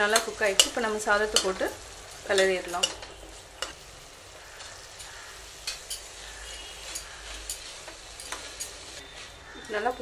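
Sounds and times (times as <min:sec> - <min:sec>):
paste sizzling: 0:00.0 - 0:10.0
metal spoon scraping a pot: 0:04.5 - 0:09.7.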